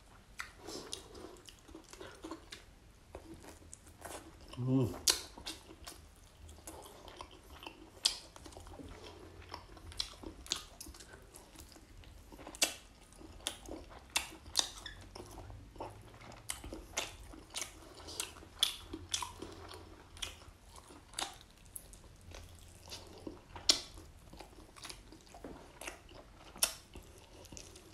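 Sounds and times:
crunchy chewing: 0.4 - 27.9.

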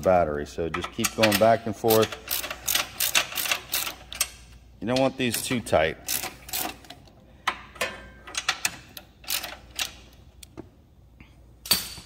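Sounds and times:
ratchet wrench clicking: 1.1 - 4.4.

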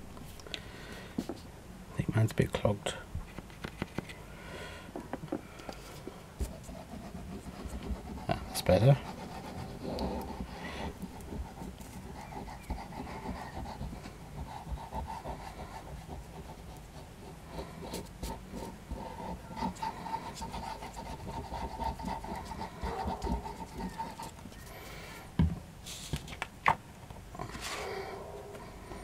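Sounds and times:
glue nozzle scratching chipboard: 6.4 - 24.6.

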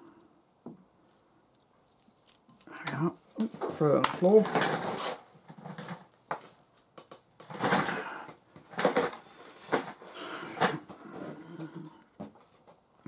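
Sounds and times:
rustling and scraping: 1.0 - 12.9
objects knocking and clunking: 2.5 - 12.9.

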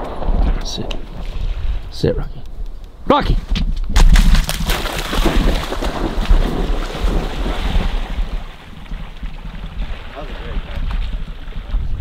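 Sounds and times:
dog splashing into water: 4.1 - 10.2.

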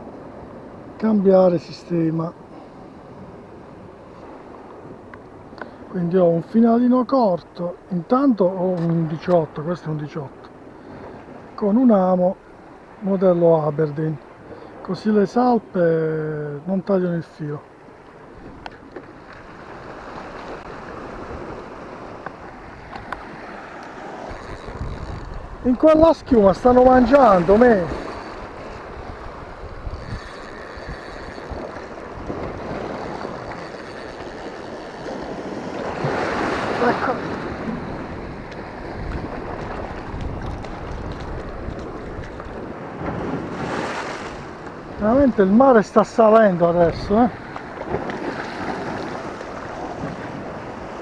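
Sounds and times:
wind on microphone: 18.3 - 45.6
surf washing over rocks: 18.3 - 51.0.

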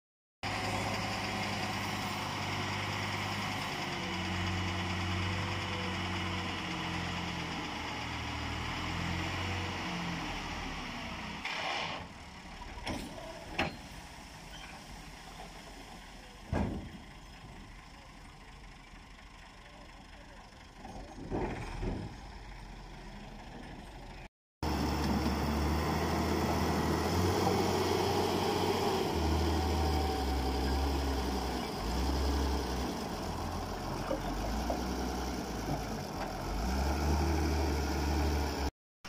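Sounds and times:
tractor engine running: 15.6 - 38.7.

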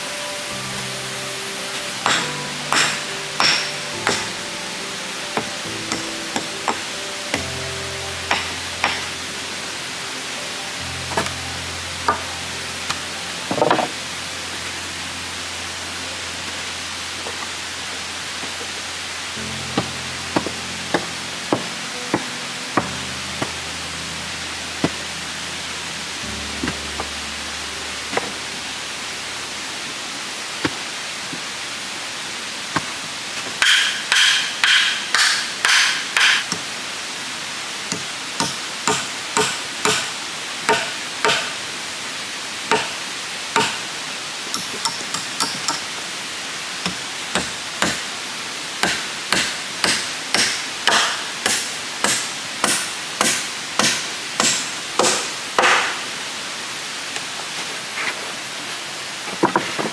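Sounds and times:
steady hiss: 0.0 - 59.9.

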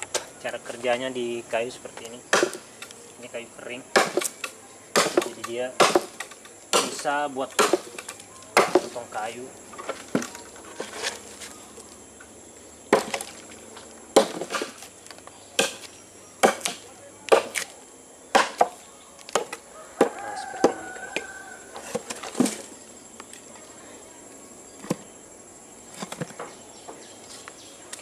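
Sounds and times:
machete chopping a log: 2.1 - 2.7, 3.9 - 9.0, 12.9 - 13.4, 14.2 - 14.9, 15.5 - 20.8.

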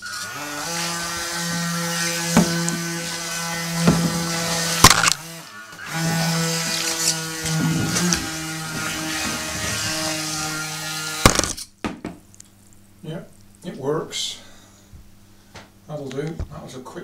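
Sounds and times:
small electric motor whining: 0.0 - 11.5
sharp knocks: 2.3 - 2.9, 3.8 - 5.2, 11.2 - 12.2.

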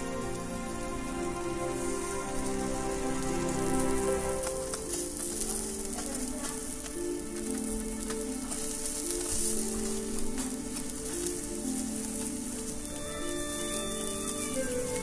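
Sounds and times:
background music with held notes: 0.0 - 15.0
skewers sizzling over charcoal: 0.0 - 15.0.

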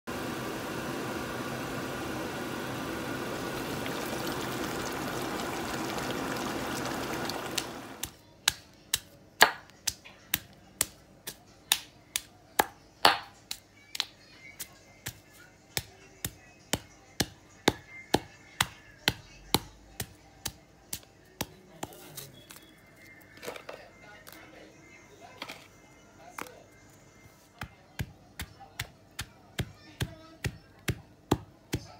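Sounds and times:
stone pestle pounding in mortar: 8.0 - 13.4, 27.6 - 31.9.

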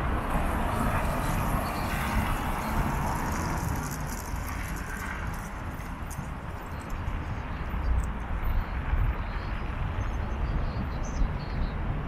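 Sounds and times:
car engines and tyre noise: 0.0 - 12.0.

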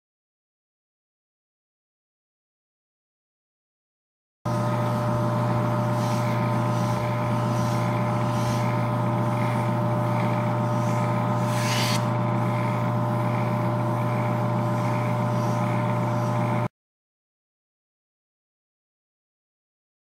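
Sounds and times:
air compressor motor hum: 4.5 - 16.7
brief air hiss: 11.4 - 12.1.

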